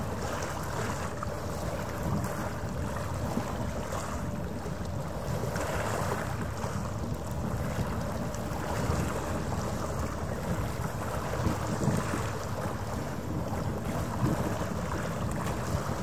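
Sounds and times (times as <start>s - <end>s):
wind noise on microphone: 7.4s - 16.0s.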